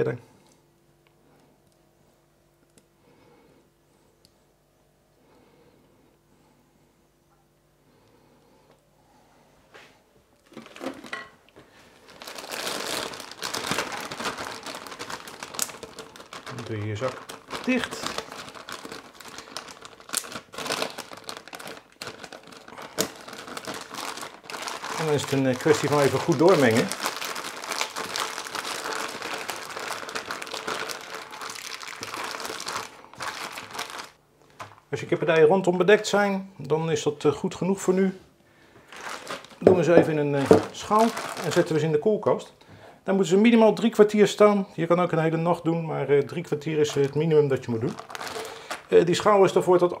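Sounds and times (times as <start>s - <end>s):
plastic bag crinkling: 10.4s - 36.0s, 38.7s - 42.0s, 46.1s - 50.0s.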